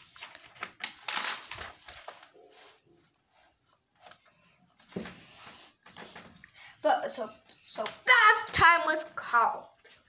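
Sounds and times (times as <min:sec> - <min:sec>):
paper page turning: 0:00.0 - 0:04.4
soft page handling: 0:00.0 - 0:06.2.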